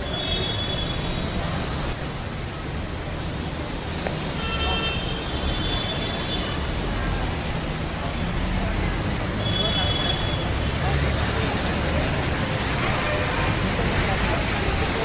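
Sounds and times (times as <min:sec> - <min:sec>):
floodwater rushing: 0:00.0 - 0:15.0
heavy rain: 0:00.0 - 0:15.0
vehicle horn: 0:04.4 - 0:06.6.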